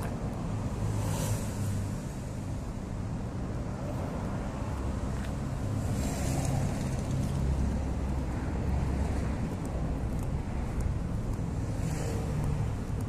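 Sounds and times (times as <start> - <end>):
motor vehicles rumbling: 0.0 - 13.0.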